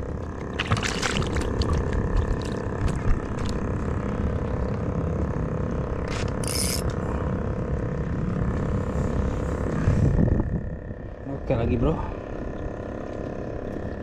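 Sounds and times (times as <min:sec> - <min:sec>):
fishing reel whirring: 0:06.0 - 0:07.0
fishing reel clicks: 0:06.4 - 0:07.0.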